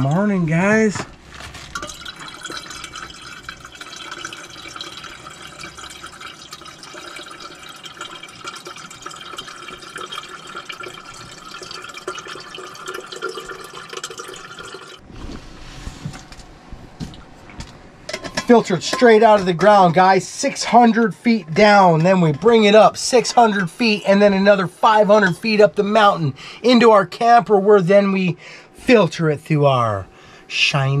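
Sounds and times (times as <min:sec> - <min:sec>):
water filling a steel chamber: 0:01.8 - 0:15.0.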